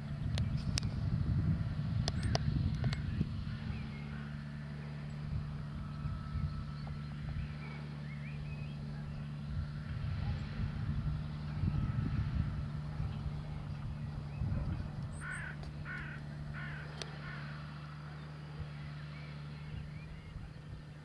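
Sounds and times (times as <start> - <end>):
tractor diesel engine running: 0.0 - 21.0
crow cawing: 15.2 - 17.6.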